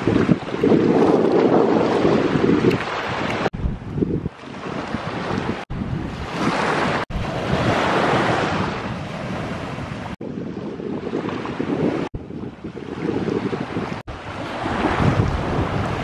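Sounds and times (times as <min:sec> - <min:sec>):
wind buffeting microphone: 0:00.0 - 0:16.0
waves washing onto sand: 0:04.3 - 0:10.2, 0:11.1 - 0:16.0.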